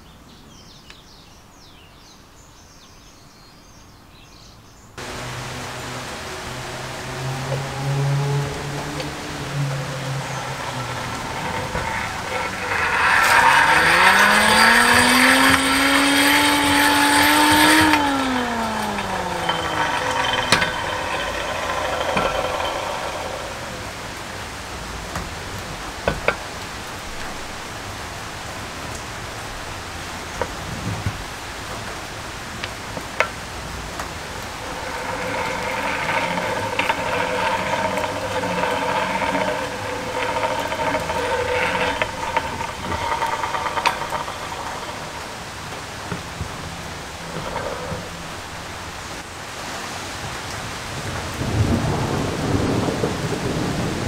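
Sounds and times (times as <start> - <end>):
hand-cranked forge blower whine: 5.0 - 27.5, 30.4 - 49.3.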